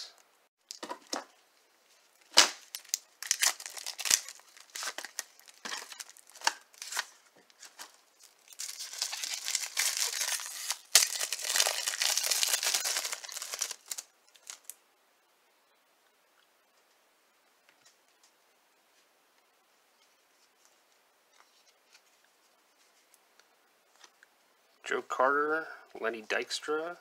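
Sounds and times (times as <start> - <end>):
wrapper crinkling: 2.1 - 14.8
card pack wrapper ripping: 2.3 - 14.8.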